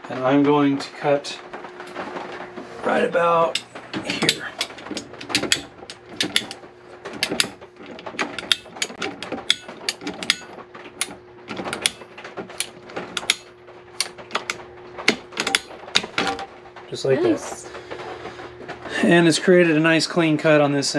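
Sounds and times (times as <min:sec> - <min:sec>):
pipe cutter ratchet clicking: 0:03.5 - 0:06.6, 0:07.2 - 0:12.0, 0:12.6 - 0:13.4, 0:14.0 - 0:16.1.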